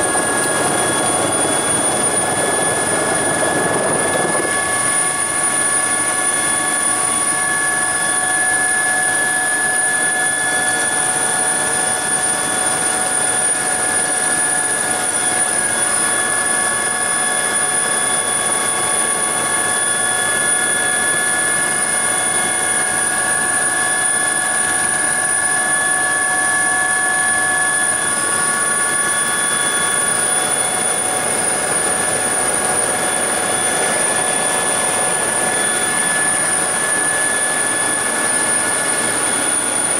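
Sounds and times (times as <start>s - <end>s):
helicopter engine and rotor noise: 0.0s - 39.9s
high-pitched turbine whine: 0.0s - 39.9s.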